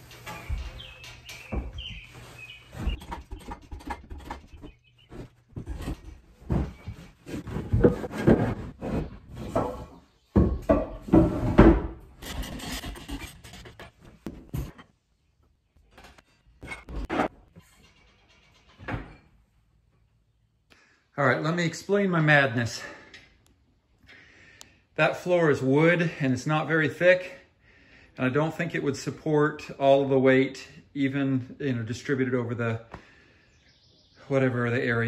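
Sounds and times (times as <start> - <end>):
wooden blocks knocking and scraping: 0.0 - 15.0.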